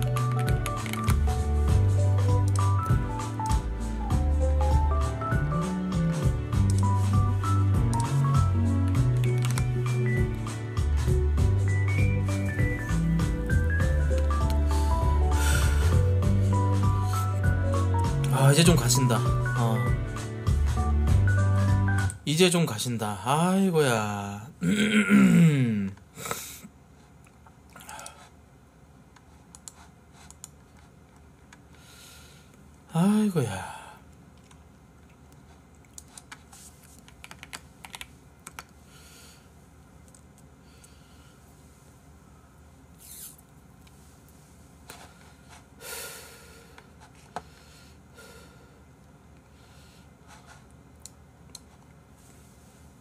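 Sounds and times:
person sniffing and snorting: 14.5s - 16.2s, 17.0s - 17.4s
breathy hiss: 14.6s - 16.2s, 45.0s - 48.8s.

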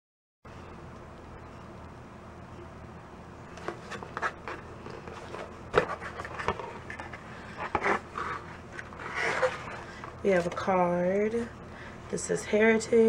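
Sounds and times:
cardboard scraping and rustling: 3.6s - 10.7s.

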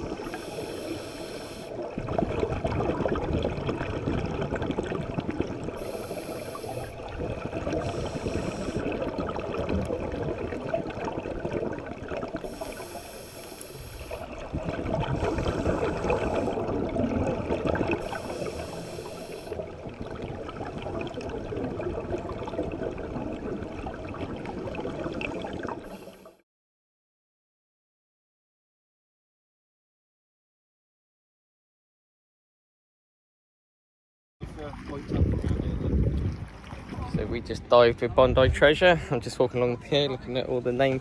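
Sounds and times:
bubbling exhalations: 0.0s - 26.4s
underwater water noise: 0.0s - 26.4s, 34.4s - 41.0s
scuba regulator breaths hissing: 0.1s - 1.8s, 5.8s - 7.1s, 7.7s - 9.0s, 12.4s - 14.4s, 15.0s - 16.7s, 17.9s - 19.6s, 25.8s - 26.4s.

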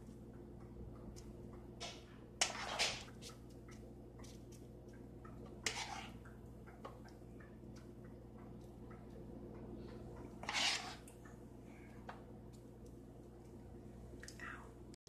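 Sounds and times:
faint steady hum: 0.0s - 15.0s
spoon scraping batter: 2.4s - 7.9s, 9.9s - 11.3s.

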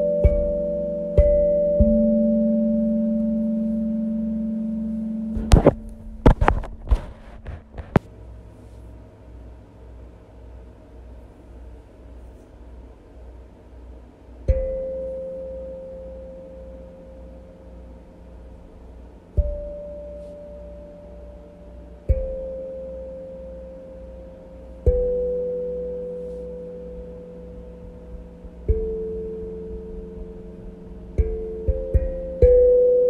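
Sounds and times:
steel tongue drum note ringing: 0.0s - 7.6s, 14.4s - 33.0s
sharp knocks and clicks: 5.4s - 8.1s.

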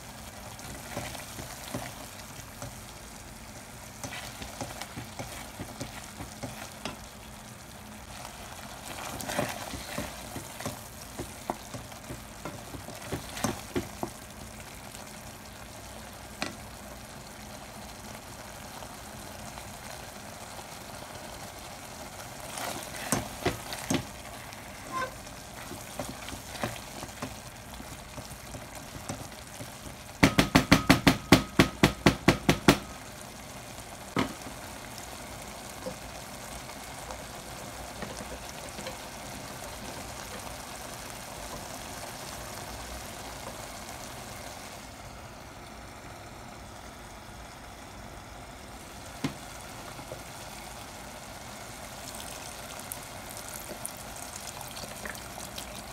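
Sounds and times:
sauce sizzling in a pot: 0.0s - 55.9s
wooden spoon knocking pot: 28.9s - 32.8s.

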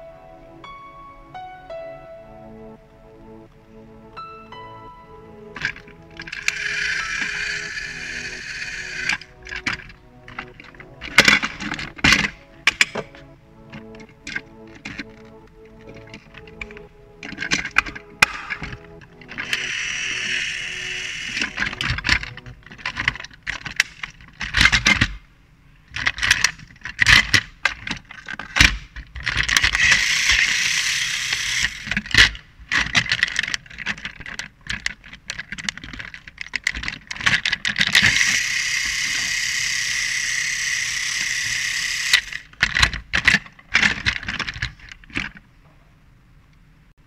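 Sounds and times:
toy engines clacking: 5.6s - 25.2s, 26.0s - 45.4s
small toy motor whirring: 6.3s - 9.3s, 19.4s - 21.8s, 29.7s - 31.9s, 38.1s - 42.5s.

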